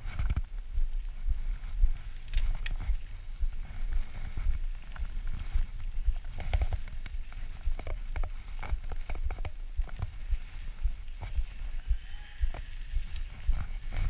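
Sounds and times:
bike tyres rumbling on dirt: 0:00.0 - 0:14.0
wind buffeting microphone: 0:00.0 - 0:14.0
bike clicks and rattles: 0:02.1 - 0:03.2, 0:04.2 - 0:10.4.

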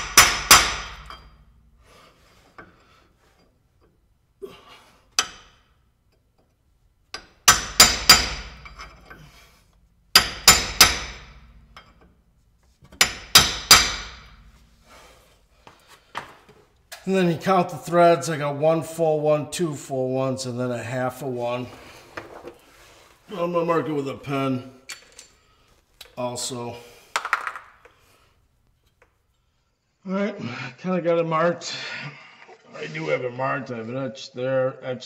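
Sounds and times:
hammer striking metal: 0:00.0 - 0:01.5, 0:05.2 - 0:05.6, 0:07.2 - 0:09.1, 0:10.1 - 0:12.0, 0:12.9 - 0:14.6.

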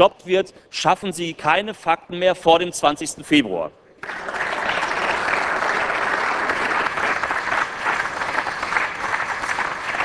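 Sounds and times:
crowd applauding: 0:04.0 - 0:10.0.

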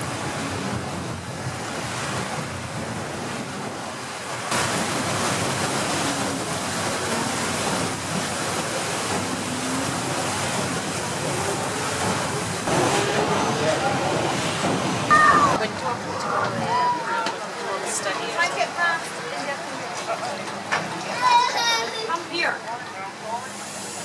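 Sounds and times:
water churning alongside hull: 0:00.0 - 0:24.0.

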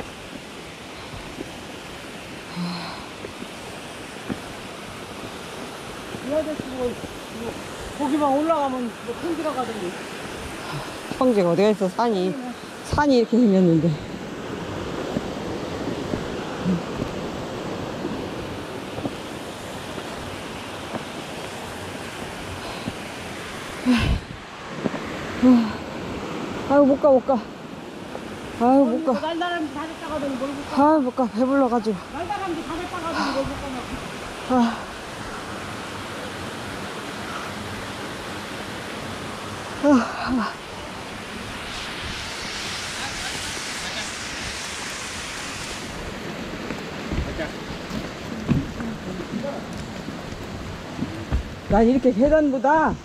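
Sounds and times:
wind over microphone: 0:00.0 - 0:28.8, 0:40.4 - 0:53.0
steady rushing noise: 0:00.0 - 0:53.0.

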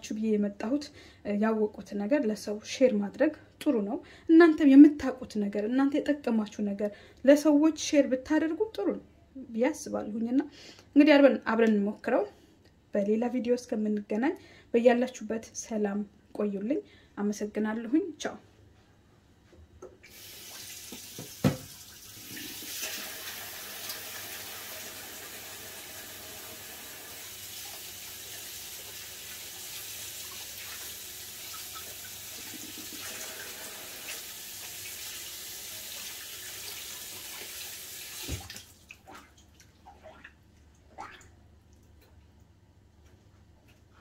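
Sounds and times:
water tap running into sink: 0:20.0 - 0:39.0.

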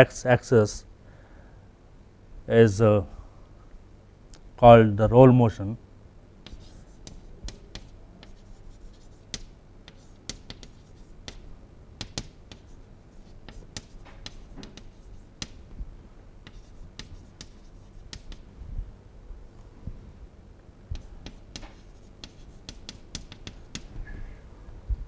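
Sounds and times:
chalk writing on chalkboard: 0:06.4 - 0:15.7, 0:16.4 - 0:18.5, 0:21.0 - 0:24.0.

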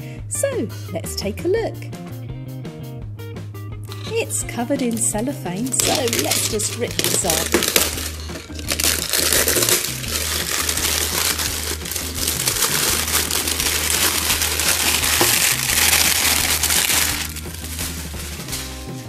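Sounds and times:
cellophane crinkling and tearing: 0:03.9 - 0:18.7.

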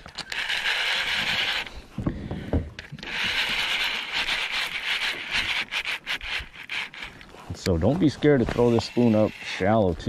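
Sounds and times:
fishing reel whirring: 0:00.0 - 0:01.8, 0:02.8 - 0:07.3, 0:08.5 - 0:09.8.

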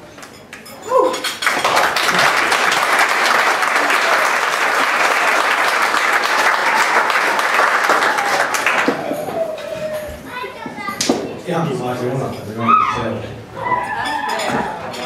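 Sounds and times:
audience applauding: 0:01.2 - 0:09.7.

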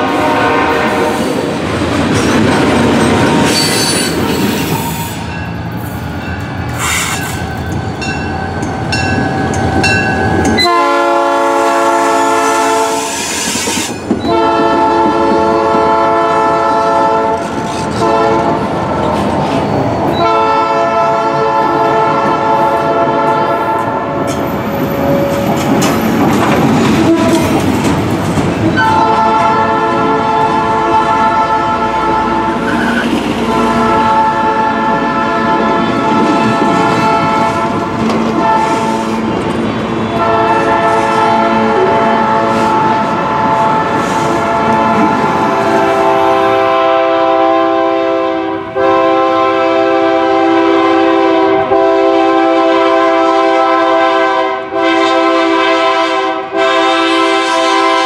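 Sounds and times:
locomotive air horn: 0:00.0 - 0:01.6, 0:02.3 - 0:05.3, 0:06.8 - 0:07.4, 0:10.3 - 0:18.8, 0:20.1 - 0:24.3, 0:26.9 - 0:27.8, 0:28.7 - 0:39.4, 0:40.0 - 0:58.0
train wheels rolling and squealing: 0:01.1 - 0:10.9, 0:12.1 - 0:15.5, 0:17.3 - 0:21.0, 0:23.3 - 0:29.6, 0:32.2 - 0:34.2, 0:35.7 - 0:46.7.

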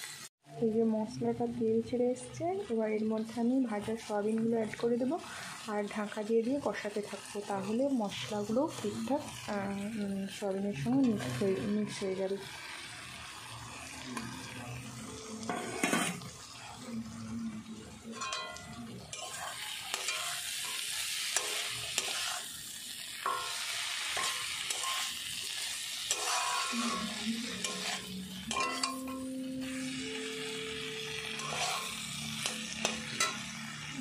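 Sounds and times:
oil sizzling: 0:00.0 - 0:00.3, 0:01.0 - 0:34.0
metal spatula scraping pan: 0:10.8 - 0:12.2, 0:15.4 - 0:16.3, 0:18.2 - 0:22.5, 0:23.2 - 0:29.2, 0:31.3 - 0:33.8.

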